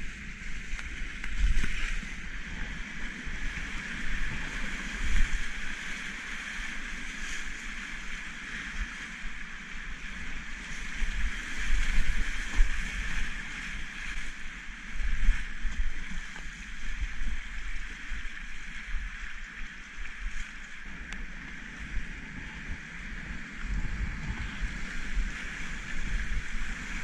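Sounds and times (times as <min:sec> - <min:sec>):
low rumbling buffets: 0:14.7 - 0:27.0.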